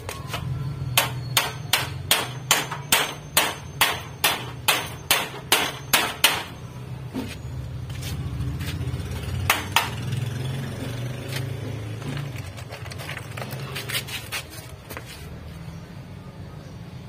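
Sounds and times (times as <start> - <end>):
hammer striking wooden frame: 1.0 - 6.6, 9.4 - 10.2.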